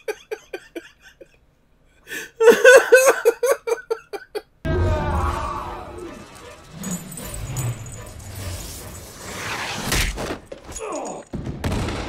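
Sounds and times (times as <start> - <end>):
man laughing hard: 0.0 - 1.4, 2.1 - 4.6.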